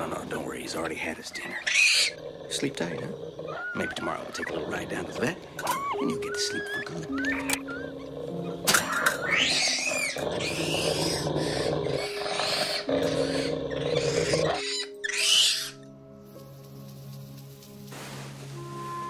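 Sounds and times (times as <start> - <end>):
low sustained musical score: 0.0 - 19.0
monkey screeching: 1.4 - 2.2, 3.5 - 4.5, 5.6 - 15.8.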